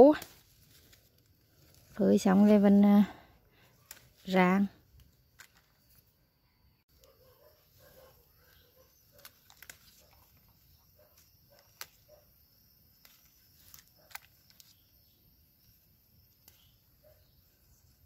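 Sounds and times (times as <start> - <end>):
plant leaves rustling: 0.0 - 6.2, 7.6 - 12.2, 12.9 - 18.0
peppers snapping off plant: 0.1 - 1.3, 5.0 - 5.8, 9.1 - 10.6, 11.5 - 12.2, 13.0 - 14.8, 16.4 - 16.8.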